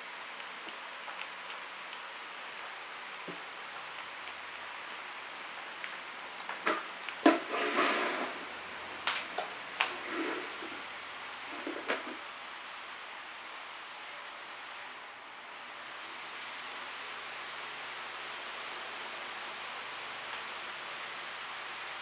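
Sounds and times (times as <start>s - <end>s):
steady hiss: 0.0s - 22.0s
fan knocks and clatters: 11.5s - 12.2s.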